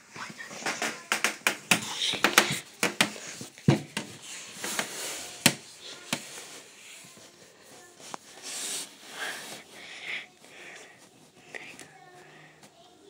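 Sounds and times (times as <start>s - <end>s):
rustling: 1.9s - 9.9s.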